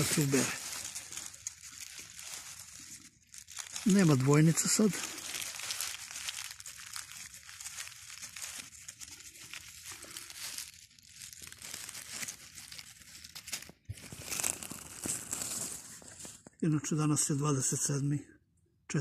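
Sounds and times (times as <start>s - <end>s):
dry leaves rustling and crackling: 0.0s - 16.4s.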